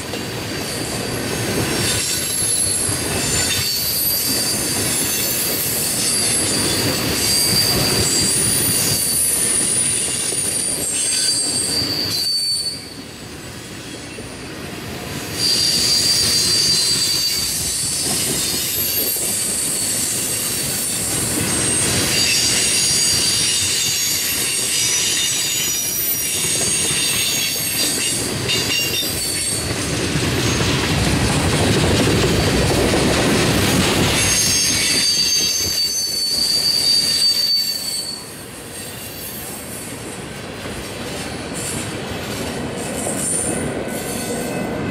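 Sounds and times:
train wheels rumbling on rail: 0.0s - 44.9s
high-pitched wheel squeal: 1.8s - 13.0s, 15.4s - 20.4s, 21.5s - 28.1s, 34.2s - 39.6s.

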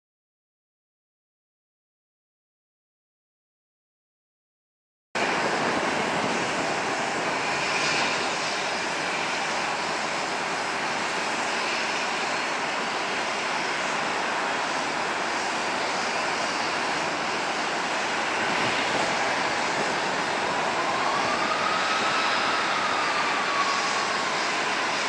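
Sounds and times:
jet engines idling: 5.2s - 25.0s.

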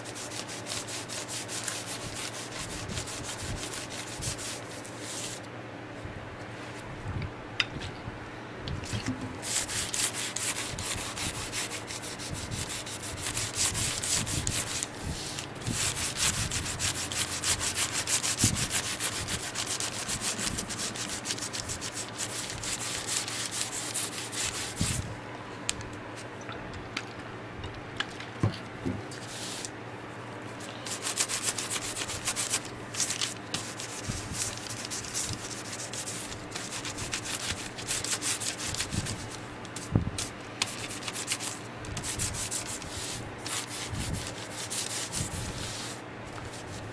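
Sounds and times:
pad rubbing on leather: 9.4s - 25.0s.

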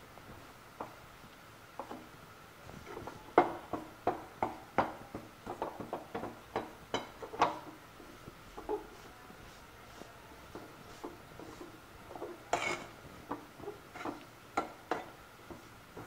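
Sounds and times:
metal spatula scraping metal pan: 12.5s - 13.0s.

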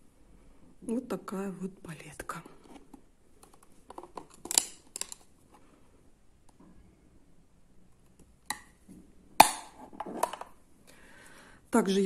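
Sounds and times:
faint handling sounds: 2.0s - 6.9s.

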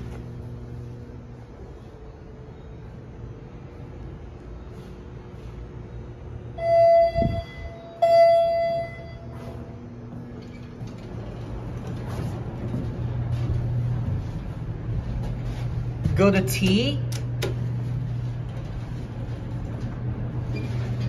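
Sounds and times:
steady low hum: 0.0s - 21.0s
elevator doors opening: 6.5s - 21.0s
elevator chime tones: 6.6s - 9.8s.

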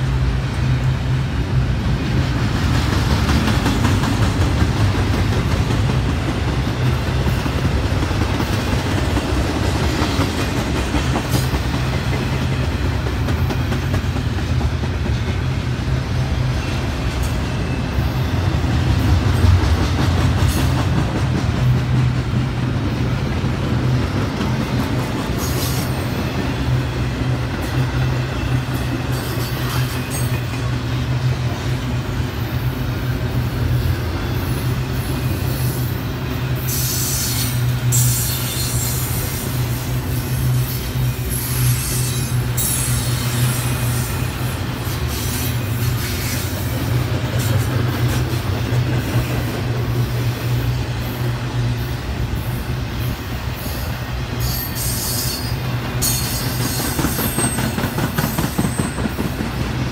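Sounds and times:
steel wheels rumbling on rail: 0.0s - 59.9s.

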